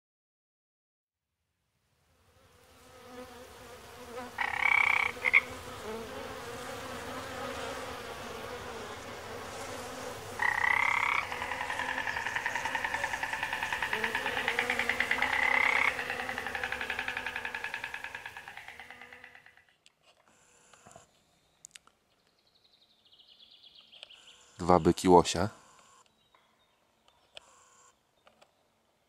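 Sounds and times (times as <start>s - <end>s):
frogs croaking: 4.3s - 5.7s, 10.4s - 19.8s.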